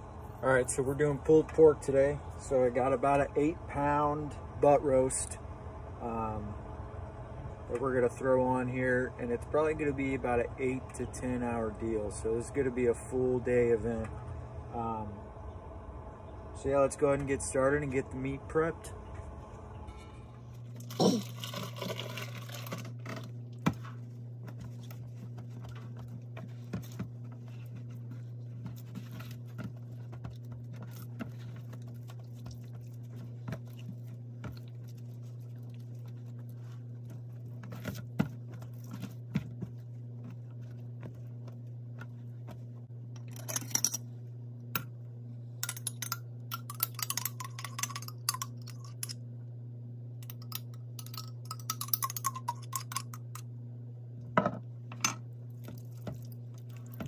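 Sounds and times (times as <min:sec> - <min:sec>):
steady low hum: 0:00.0 - 0:57.0.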